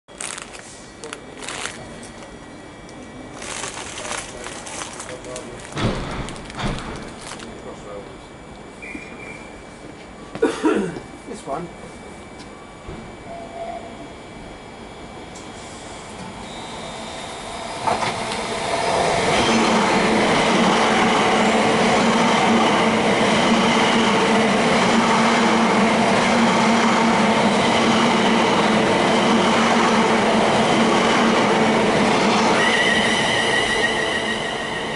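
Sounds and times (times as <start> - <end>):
train wheels rushing on rail: 16.1 - 34.9.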